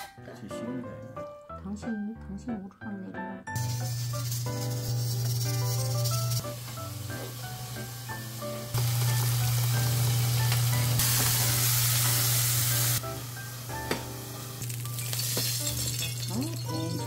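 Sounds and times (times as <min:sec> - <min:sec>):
soft background music: 0:00.0 - 0:17.0
fish sizzling in oil: 0:03.6 - 0:17.0.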